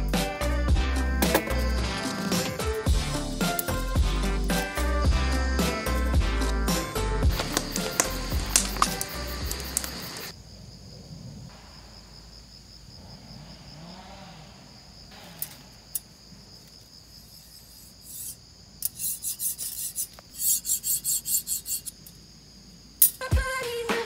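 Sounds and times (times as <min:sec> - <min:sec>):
metal tool scraping grill bars: 0:17.5 - 0:22.0.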